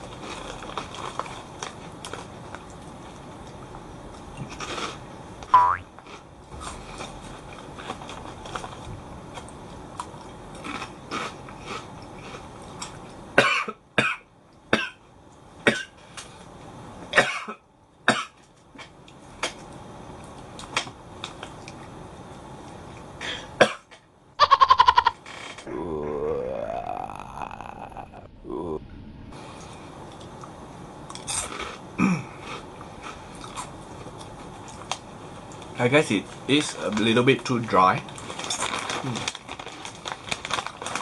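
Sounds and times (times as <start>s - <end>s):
man crunching crackers: 0.0s - 3.2s, 6.0s - 13.2s, 31.1s - 35.7s, 38.0s - 41.0s.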